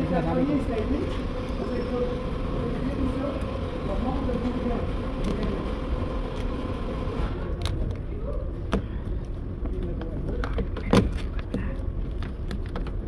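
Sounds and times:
steady hum: 0.0s - 12.6s
low workshop rumble: 0.0s - 13.0s
clicks and knocks of car parts: 9.7s - 13.0s.

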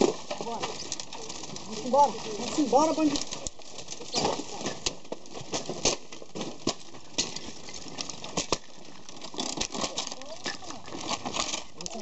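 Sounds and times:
wooden cages clicking and knocking: 0.0s - 12.0s.

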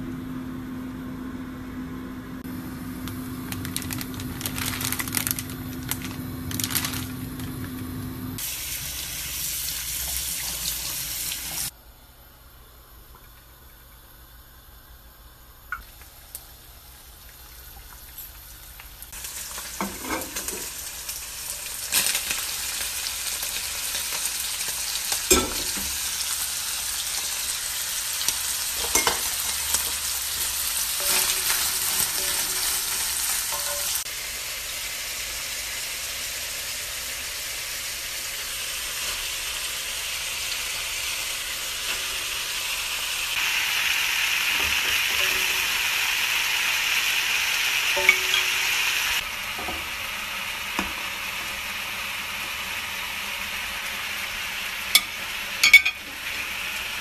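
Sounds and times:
food sizzling in hot oil: 2.5s - 11.7s, 15.8s - 57.0s.

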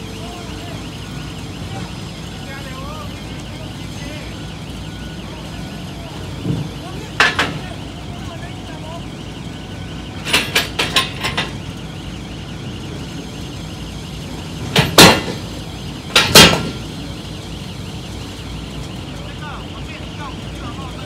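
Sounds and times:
loud metal bangs: 14.5s - 17.1s.

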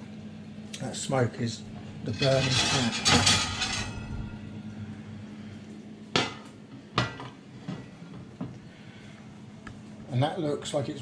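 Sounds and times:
low hum: 1.6s - 6.1s
griddle pan scraping on oven shelf: 2.0s - 4.5s.

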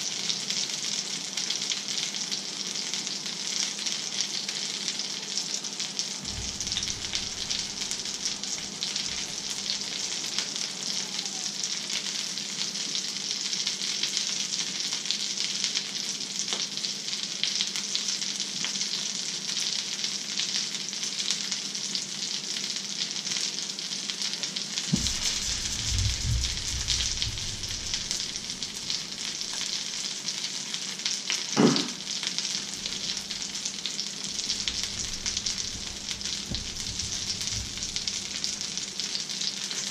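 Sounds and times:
fish sizzling in a frying pan: 0.0s - 39.9s
low rumble: 6.2s - 10.3s, 24.9s - 30.1s, 32.7s - 39.0s
knock: 24.9s - 29.6s, 31.6s - 32.0s, 34.4s - 38.6s.

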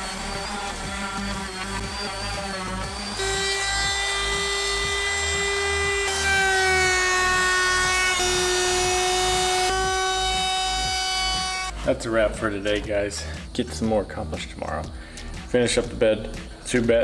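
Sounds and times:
router motor whining: 0.0s - 11.8s
sander humming: 0.0s - 17.0s.

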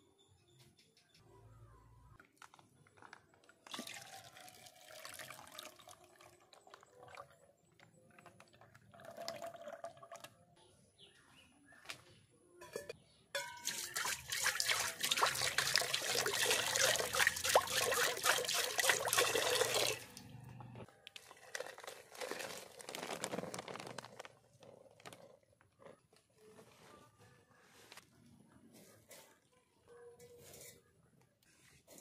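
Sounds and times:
flour pouring into water: 3.0s - 7.2s, 13.6s - 20.1s, 21.3s - 24.4s
water pouring into metal bowl: 3.6s - 7.3s, 8.6s - 10.4s, 13.4s - 20.3s.

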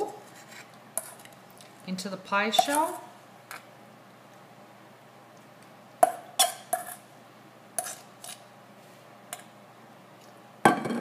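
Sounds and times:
metal bowl knocking and clinking: 10.7s - 11.0s.

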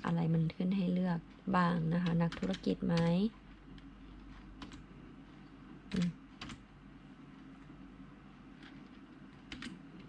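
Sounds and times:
steady low hum: 0.0s - 10.0s
keyboard keystrokes: 2.0s - 3.1s, 9.5s - 9.8s.

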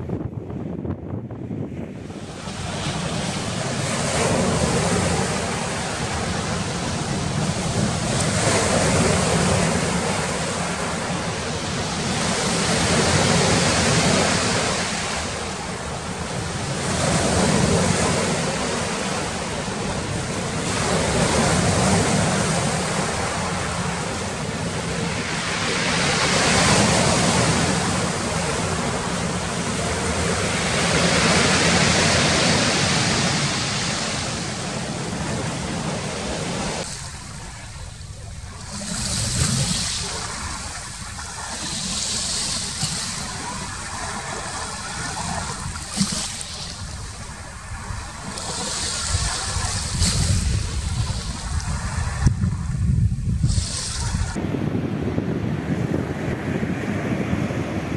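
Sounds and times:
waves breaking on a beach: 1.5s - 57.9s.

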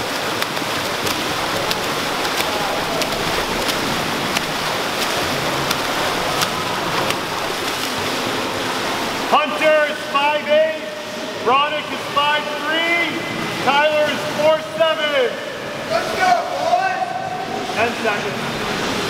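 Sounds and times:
hands slapping water: 0.0s - 9.3s
churning water from swimmers: 0.0s - 19.0s.

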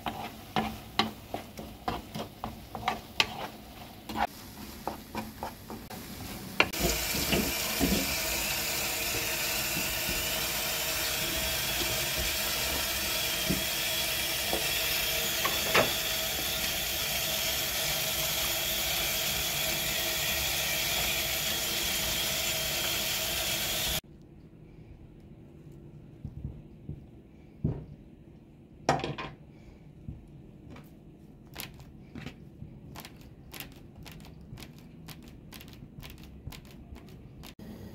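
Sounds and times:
tap water running into colander: 5.7s - 24.0s.

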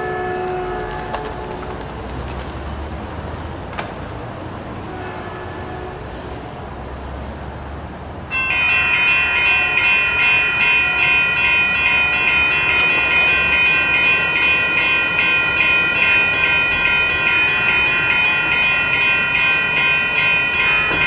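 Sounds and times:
railroad crossing bell ringing: 0.0s - 0.8s, 8.3s - 21.0s.

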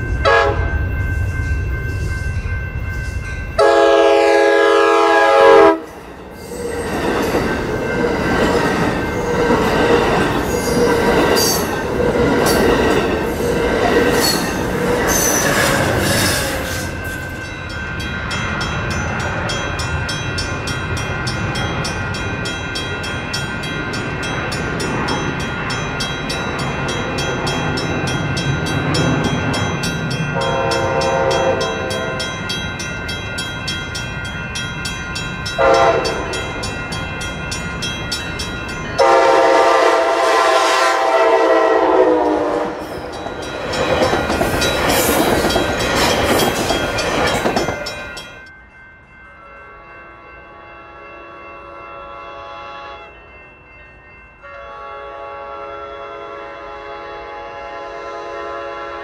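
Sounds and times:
approaching train rumble: 0.0s - 51.0s
train horn: 0.2s - 0.8s, 3.6s - 6.0s, 30.4s - 32.3s, 35.6s - 36.3s, 39.0s - 42.9s, 49.4s - 53.2s, 54.4s - 59.0s
train wheels clattering and squealing: 5.9s - 17.4s, 42.8s - 48.5s.

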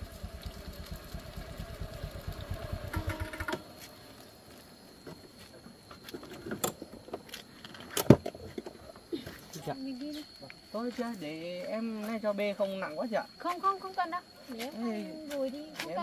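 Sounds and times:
motorcycle engine idling: 0.0s - 4.6s.

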